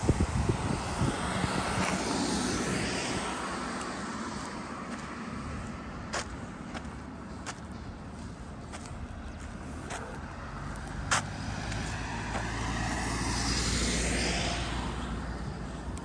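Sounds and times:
truck driving past: 7.1s - 16.0s.

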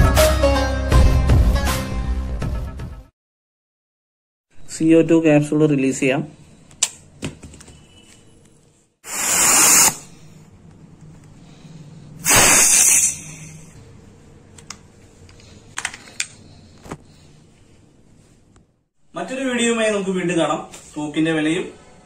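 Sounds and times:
compressed gas hissing: 9.0s - 10.2s, 12.2s - 13.7s.

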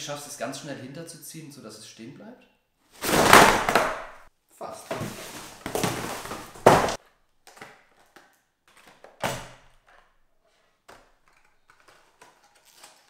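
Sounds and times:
cardboard box and bubble wrap rustling: 3.0s - 4.0s, 4.9s - 7.0s
plastic boxes knocking on wooden table: 3.1s - 4.2s, 5.0s - 7.7s.

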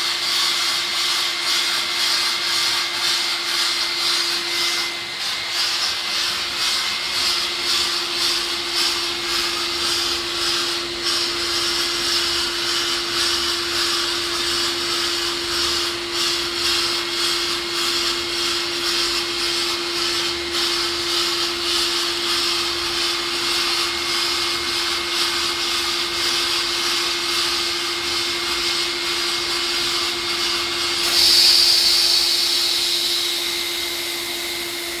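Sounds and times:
sandblaster air hiss: 0.0s - 35.0s
steady hum: 30.9s - 35.0s.

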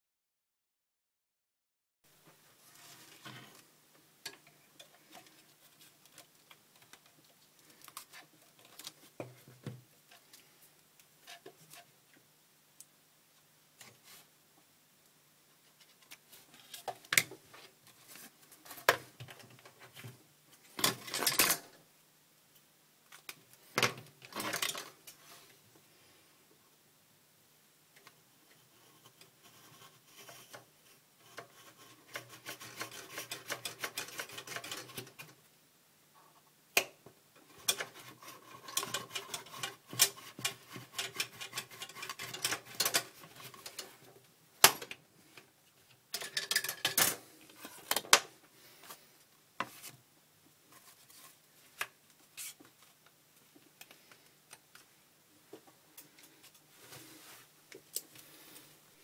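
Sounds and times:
knife blade scraping rod: 37.7s - 42.9s.

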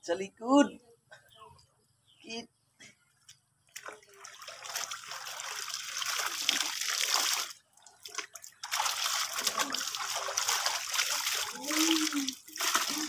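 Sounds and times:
water splashing and sloshing: 3.2s - 13.0s
hose trickling water: 3.7s - 13.0s.

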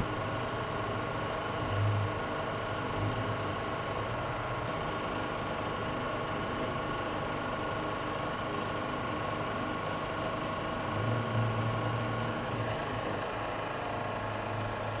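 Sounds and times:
pressure washer running: 0.0s - 15.0s.

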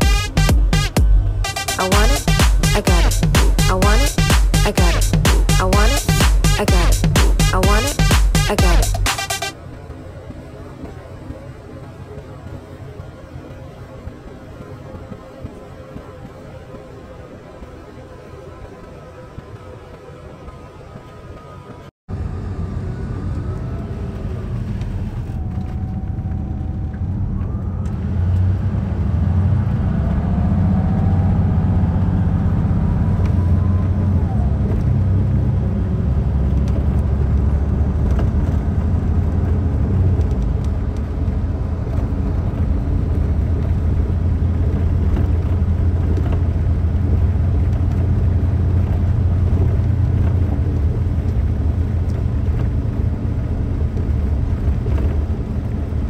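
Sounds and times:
vehicle road and engine rumble: 0.0s - 56.0s.

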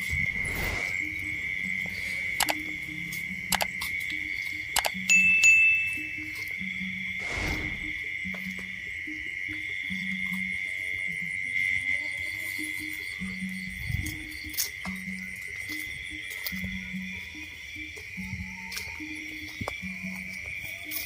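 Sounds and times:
insects trilling: 0.0s - 21.0s.

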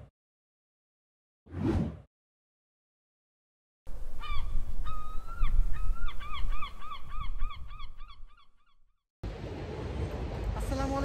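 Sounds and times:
waterbird calling: 4.1s - 8.8s.

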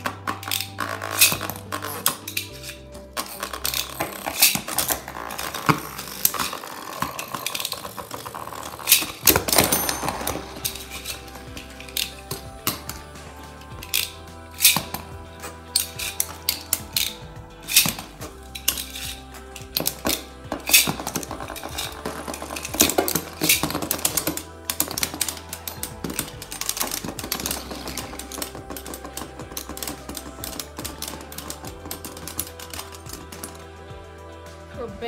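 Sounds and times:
background music: 0.0s - 35.0s
spinning tops clattering: 0.1s - 33.8s.

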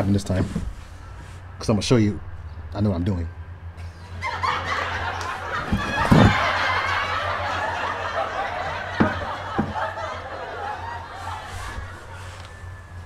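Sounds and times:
dull knocks: 5.6s - 6.6s, 9.0s - 9.8s.

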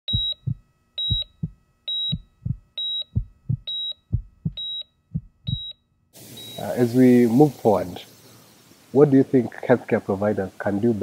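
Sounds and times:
heartbeat thumps: 0.1s - 5.7s
heart monitor beep: 0.1s - 5.8s, 6.4s - 6.8s.

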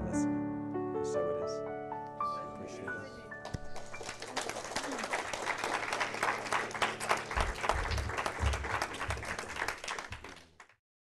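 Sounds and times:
audience applauding: 3.4s - 10.8s.

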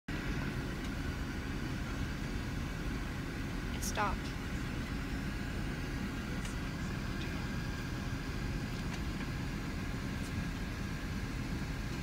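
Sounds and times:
airliner cabin rumble: 0.1s - 12.0s.

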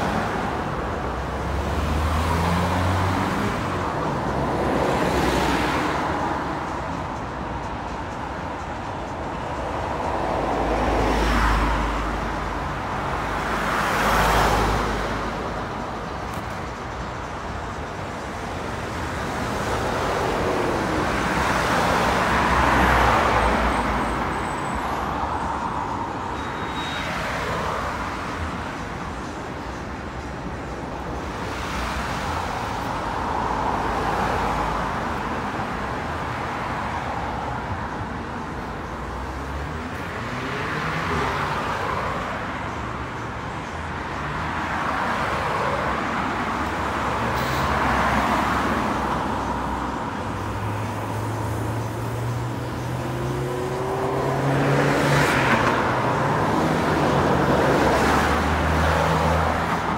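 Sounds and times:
cars passing by: 0.0s - 59.9s
traffic hiss: 37.8s - 54.4s.

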